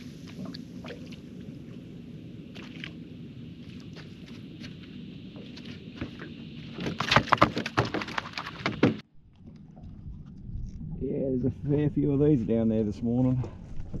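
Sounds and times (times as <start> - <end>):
fish knocking and slapping: 6.8 - 9.0.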